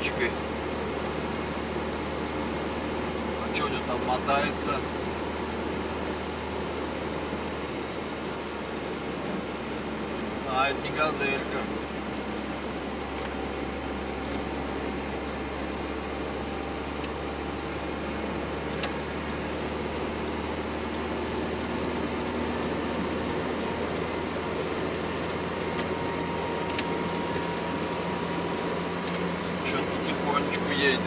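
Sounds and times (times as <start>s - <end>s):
truck engine and road noise: 0.0s - 31.0s
light clicks: 18.7s - 25.9s.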